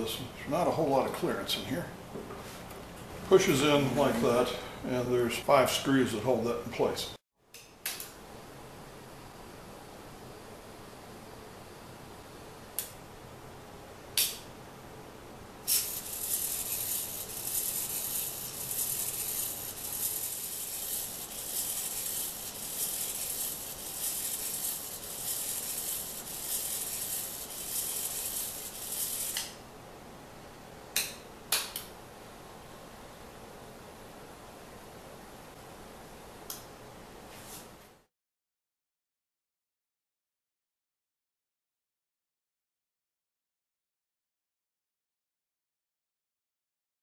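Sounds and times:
small motor whirring: 0:15.7 - 0:29.5.

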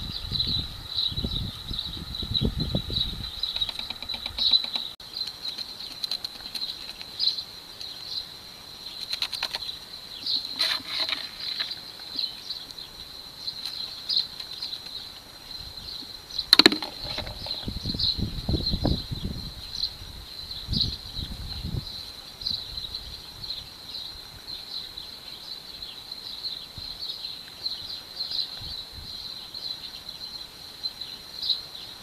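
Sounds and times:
high-pitched insect chirping: 0:00.0 - 0:32.0
sharp knock: 0:16.6 - 0:17.7.

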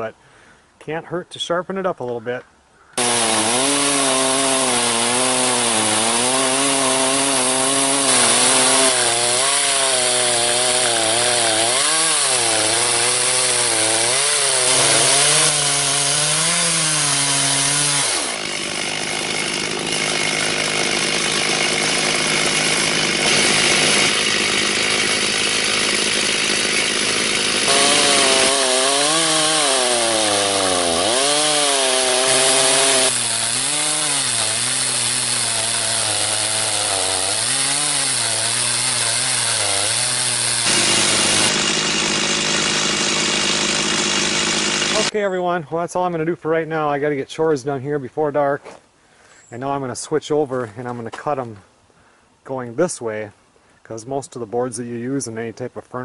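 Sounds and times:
chainsaw cutting wood: 0:03.0 - 0:45.2.

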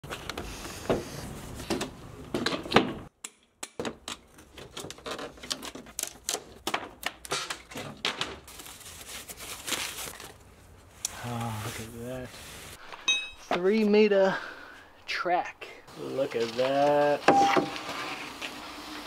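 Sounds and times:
cardboard packaging being handled: 0:04.3 - 0:12.7.

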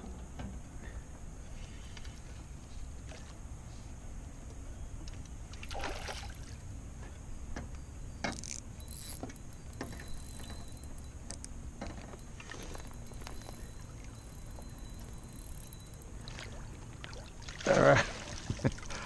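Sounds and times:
rumble of wind and water: 0:00.0 - 0:19.0
water splash: 0:05.6 - 0:06.4.

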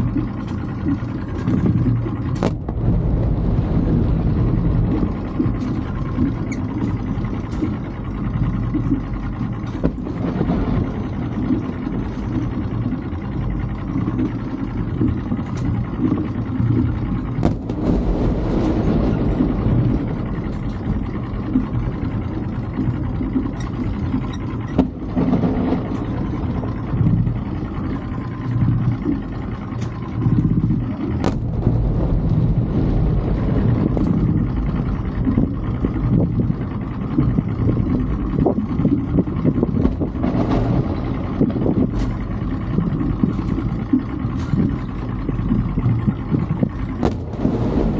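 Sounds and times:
outboard motor running: 0:00.0 - 0:47.9
distant firework bangs: 0:47.0 - 0:47.9.

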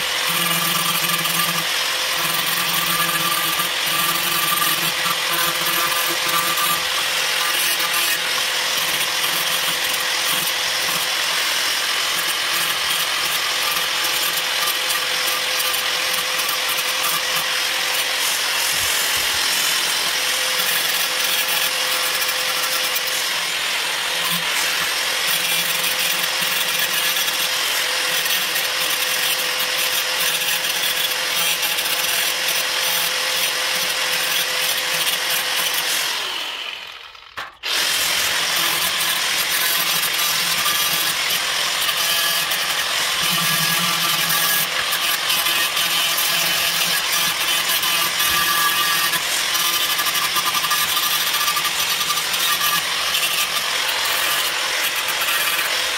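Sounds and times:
angle grinder grinding metal: 0:00.0 - 0:55.9.

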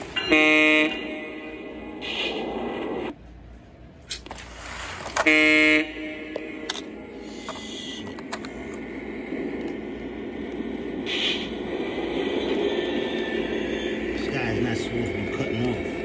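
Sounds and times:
model train horn tone: 0:00.2 - 0:01.8, 0:05.1 - 0:06.9
model train rumbling on track: 0:05.2 - 0:16.0.

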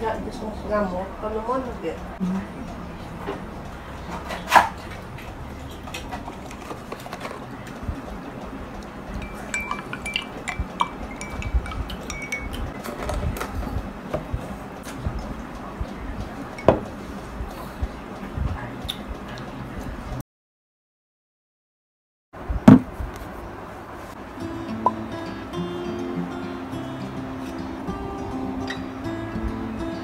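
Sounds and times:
milk pouring into a glass: 0:09.2 - 0:12.6
cutlery and dishes clinking: 0:09.2 - 0:13.5.

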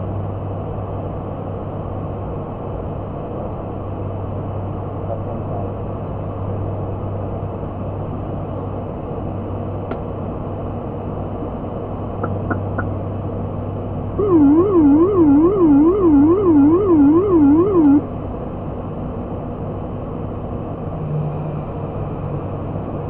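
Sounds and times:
turboprop airliner drone: 0:08.9 - 0:20.8
warbling music: 0:14.2 - 0:18.0.

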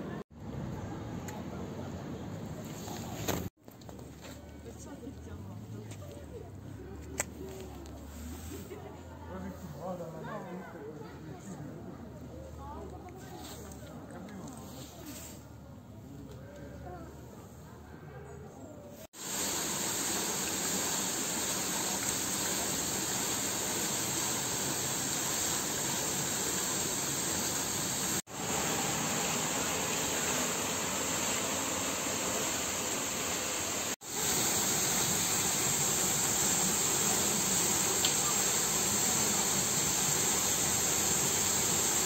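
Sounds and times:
fountain water splashing: 0:19.2 - 0:42.0.

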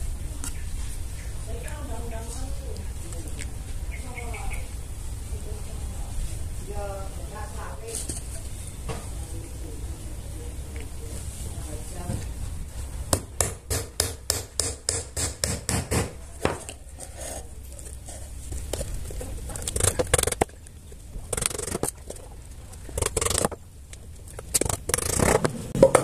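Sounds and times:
boards scraping and knocking: 0:24.4 - 0:26.0.

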